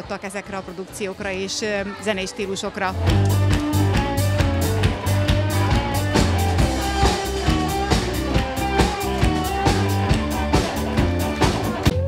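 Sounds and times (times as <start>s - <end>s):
bass guitar: 2.9s - 12.0s
drum kit steady beat: 3.0s - 12.0s
electric guitar: 3.0s - 12.0s.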